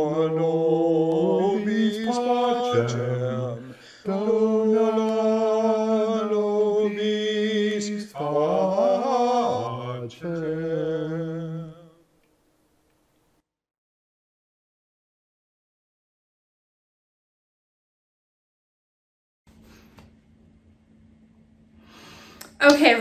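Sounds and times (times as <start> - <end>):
men singing in harmony: 0.0 - 12.0.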